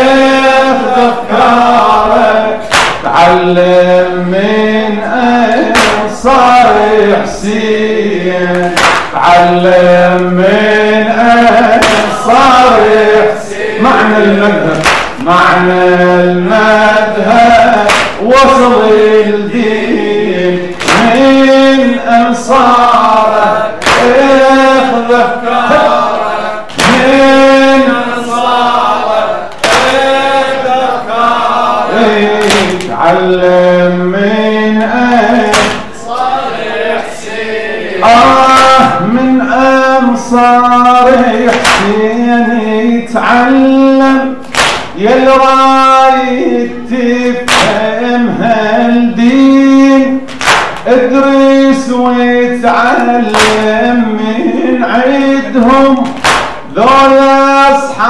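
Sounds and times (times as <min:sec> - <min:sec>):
man chanting: 0:00.0 - 0:58.0
sharp slaps: 0:02.6 - 0:03.3, 0:05.5 - 0:06.2, 0:08.5 - 0:09.4, 0:11.5 - 0:13.0, 0:14.7 - 0:15.3, 0:17.7 - 0:18.3, 0:20.7 - 0:21.7, 0:23.8 - 0:24.7, 0:26.7 - 0:27.6, 0:29.5 - 0:30.4, 0:32.4 - 0:32.9, 0:35.4 - 0:36.0, 0:38.2 - 0:39.2, 0:41.4 - 0:42.0, 0:44.4 - 0:45.0, 0:47.4 - 0:47.8, 0:50.3 - 0:50.9, 0:53.2 - 0:53.8, 0:55.6 - 0:56.7.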